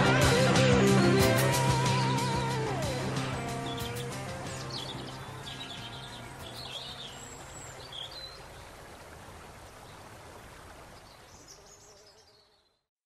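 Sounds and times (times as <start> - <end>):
high bird chirps: 3.4 - 8.4.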